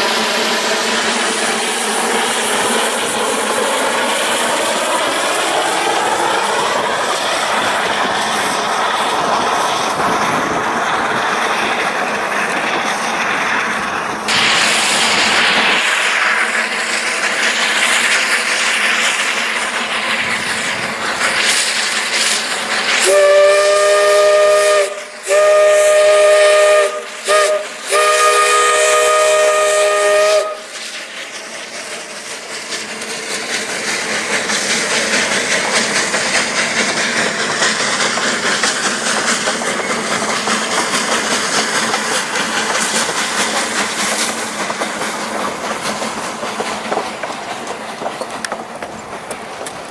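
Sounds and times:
steam locomotive running: 0.0 - 49.9
steam locomotive whistle blasts: 23.0 - 30.8.

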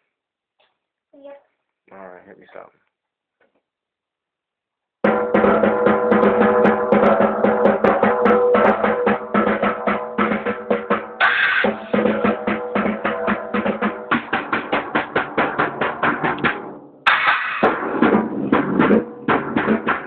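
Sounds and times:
drum kit played fast: 5.0 - 20.0.

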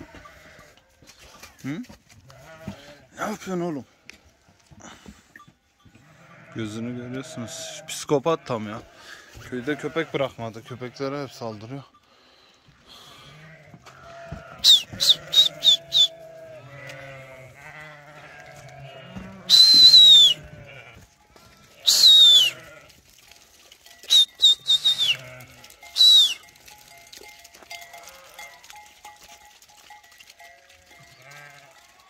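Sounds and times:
sheep and lambs bleating: 0.0 - 1.6, 2.2 - 4.1, 5.8 - 11.6, 12.9 - 23.0, 24.1 - 26.8, 27.5 - 28.9, 30.4 - 32.0.

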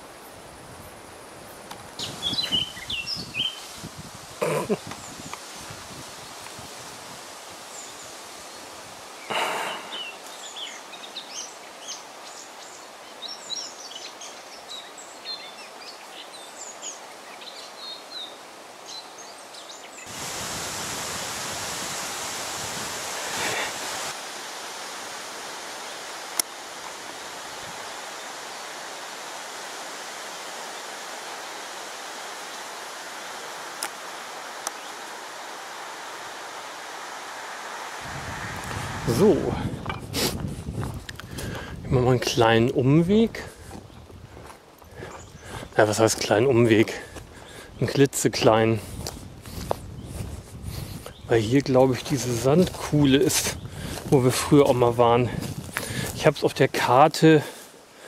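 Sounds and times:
faint hiss: 0.0 - 43.8
loud steady rushing hiss: 0.0 - 58.0
small birds chirping: 2.0 - 3.8, 4.6 - 5.8, 7.7 - 20.2, 33.8 - 35.5, 38.7 - 56.4.

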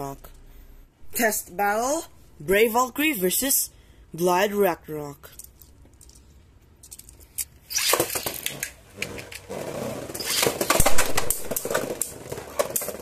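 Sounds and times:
spinning tops skittering on plastic: 5.4 - 13.0.

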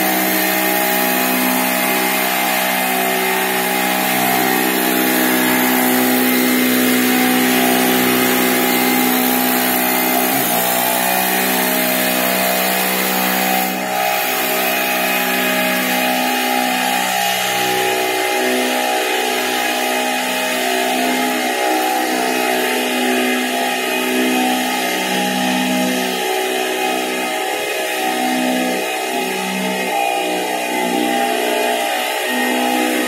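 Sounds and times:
electric blower fan: 0.0 - 33.0
petrol generator running: 0.0 - 33.0.

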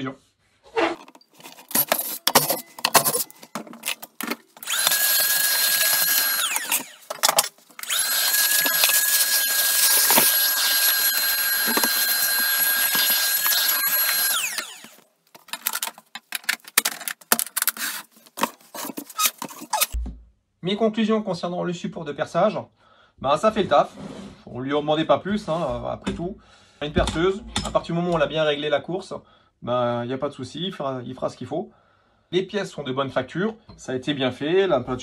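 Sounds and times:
shop vacuum whining: 1.5 - 15.0.

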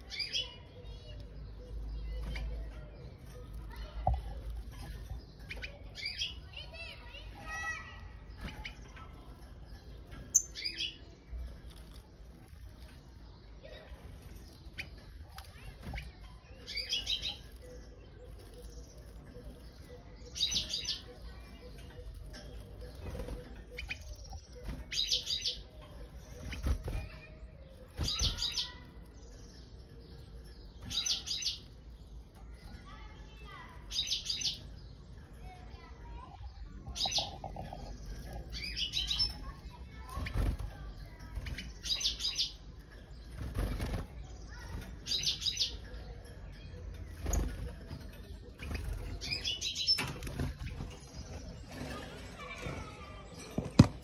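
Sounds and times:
finch chirping: 0.0 - 35.6, 36.5 - 52.8
wings fluttering: 43.2 - 45.2, 47.1 - 54.0.

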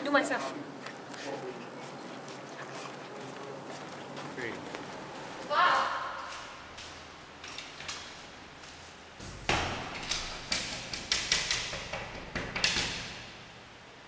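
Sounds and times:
door shutting: 9.2 - 13.5
hands banging on glass pane: 9.3 - 13.2.

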